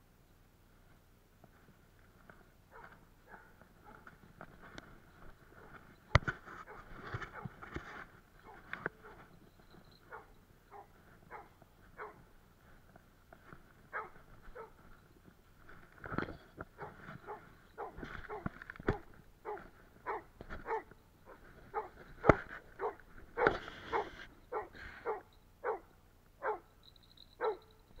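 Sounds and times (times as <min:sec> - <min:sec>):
dog barking: 0:02.7 - 0:04.2, 0:06.7 - 0:07.6, 0:10.1 - 0:12.3, 0:13.9 - 0:14.8, 0:16.8 - 0:26.7, 0:27.4 - 0:27.8.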